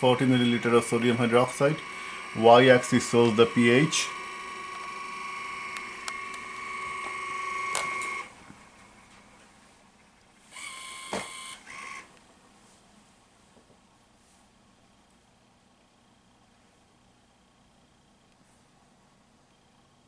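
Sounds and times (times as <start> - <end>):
motor whine: 0.0 - 9.4, 10.4 - 12.2.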